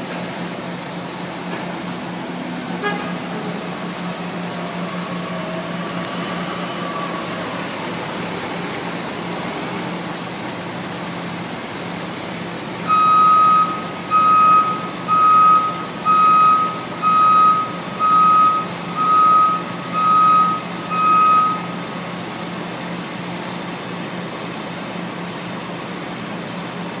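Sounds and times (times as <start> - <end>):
crane engine running: 0.0 - 27.0
crane motion alarm beeping: 12.8 - 22.1.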